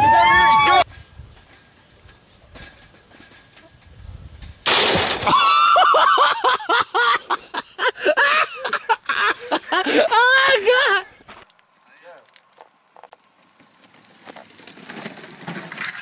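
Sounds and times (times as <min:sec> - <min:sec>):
body crashing onto concrete: 0:04.6 - 0:05.9
person crying out: 0:08.0 - 0:11.2.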